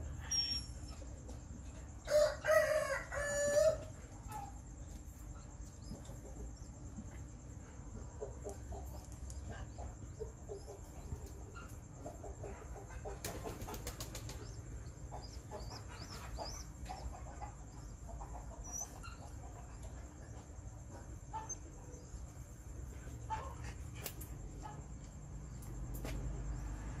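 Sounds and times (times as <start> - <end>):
small birds chirping: 3.9 - 26.9
chickens clucking: 4.2 - 22.0, 23.1 - 23.8.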